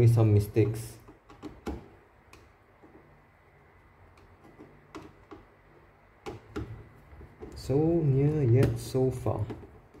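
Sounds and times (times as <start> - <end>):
screwdriver clicking and tapping: 1.0 - 3.0, 4.2 - 5.5, 6.2 - 7.6.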